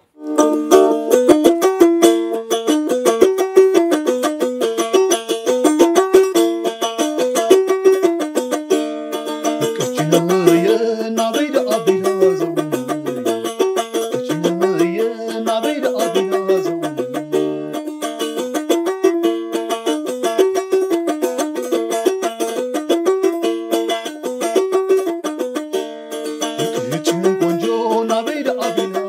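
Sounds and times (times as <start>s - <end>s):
plucked lyre melody: 0.0s - 29.0s.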